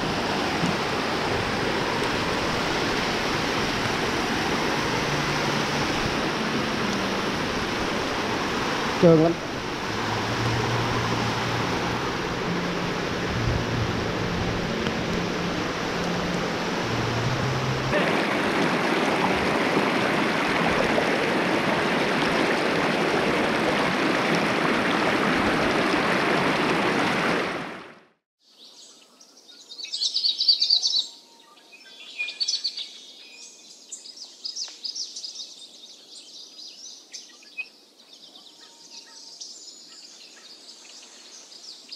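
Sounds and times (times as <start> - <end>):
stream rushing over rocks: 0.0 - 28.0
birdsong chirps and trills: 28.4 - 41.9.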